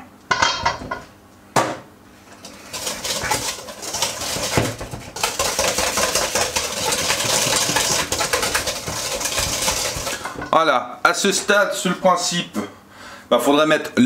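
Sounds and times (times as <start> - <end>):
whisk knocking bowl: 2.4 - 10.6
whisk rattling against bowl: 2.4 - 10.6.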